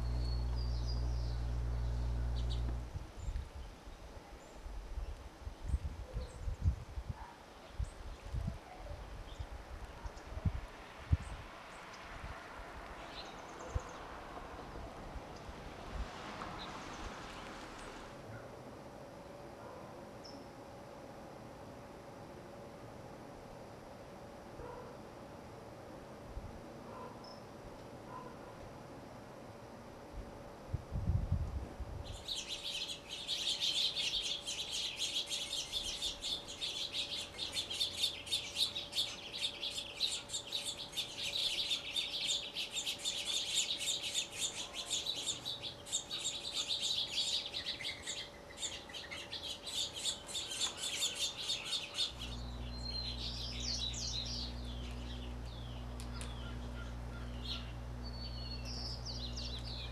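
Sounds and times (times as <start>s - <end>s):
steady low hum: 0.0s - 3.9s, 28.7s - 59.9s
small birds chirping: 0.0s - 6.9s, 12.8s - 15.8s, 32.0s - 59.9s.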